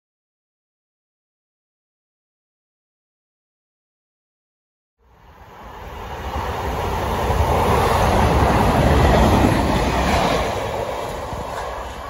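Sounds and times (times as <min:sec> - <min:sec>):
train engine throb: 0:05.0 - 0:12.0
wheels rumbling on rails: 0:05.0 - 0:12.0.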